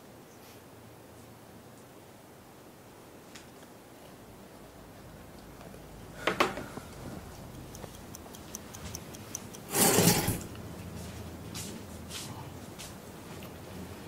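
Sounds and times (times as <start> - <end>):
wristwatch ticking: 6.6 - 10.6.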